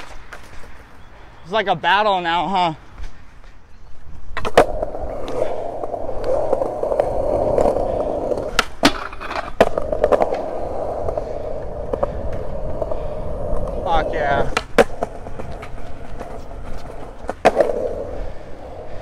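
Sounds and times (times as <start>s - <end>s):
skateboard wheels rolling on concrete: 0.0s - 19.0s
skateboard clacks: 4.3s - 19.0s.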